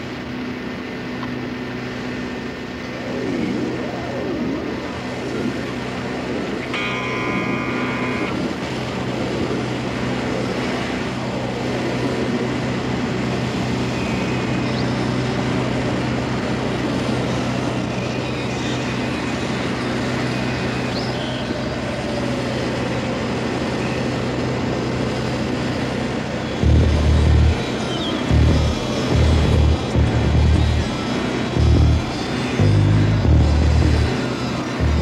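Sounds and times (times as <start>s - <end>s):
dense wash of noise: 0.0s - 35.0s
low drone: 0.0s - 35.0s.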